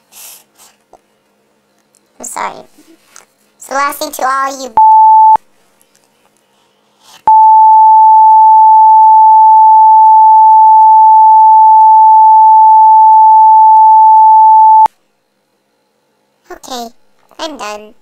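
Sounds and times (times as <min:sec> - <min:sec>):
censor bleep tone: 0:04.8 - 0:05.4, 0:07.3 - 0:14.9.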